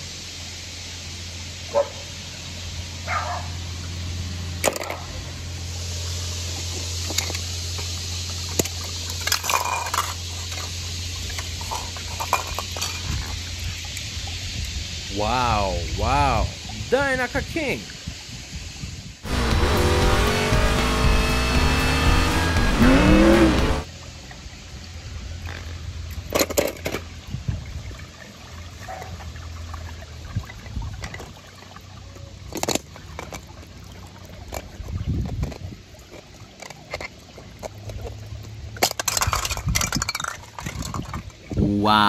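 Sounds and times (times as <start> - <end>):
race car engine: 19.2 - 23.9.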